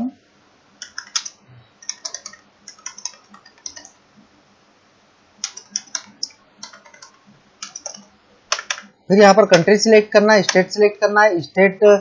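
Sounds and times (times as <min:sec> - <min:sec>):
keyboard typing: 0:00.8 - 0:04.0, 0:05.4 - 0:08.9.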